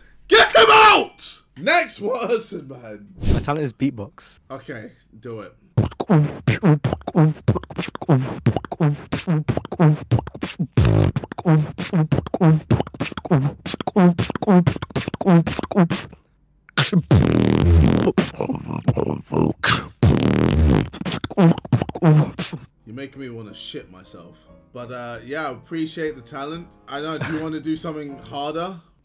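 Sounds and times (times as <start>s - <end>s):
person beatboxing: 5.8s - 22.7s.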